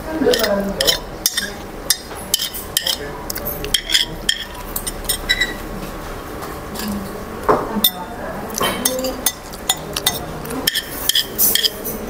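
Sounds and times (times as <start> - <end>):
cutlery clinking on a plate: 0.3 - 5.6, 7.8 - 12.0.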